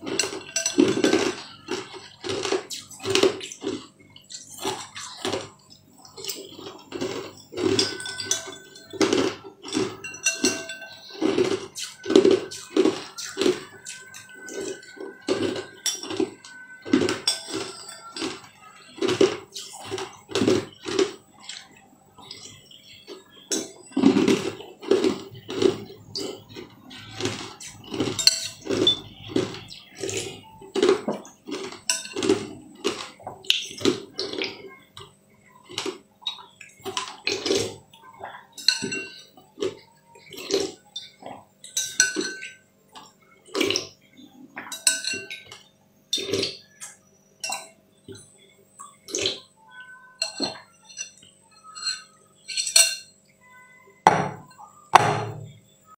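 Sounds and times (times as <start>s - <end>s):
spoon scraping glass bowl: 0.0s - 21.6s, 22.2s - 34.5s, 50.0s - 53.2s.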